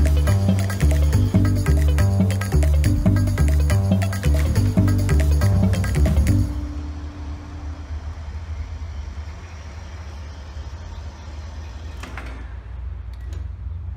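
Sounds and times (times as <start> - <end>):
background music: 0.0 - 8.2
steady low rumble: 4.4 - 11.6.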